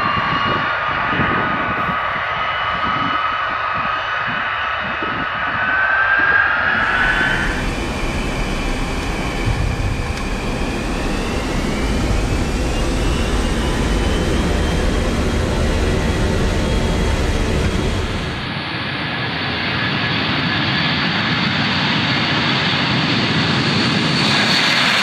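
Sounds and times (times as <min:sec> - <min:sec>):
jet engines whining: 0:00.0 - 0:25.0
jet engines spooling up: 0:04.3 - 0:19.4
cockpit engine rumble and hiss: 0:06.8 - 0:18.4.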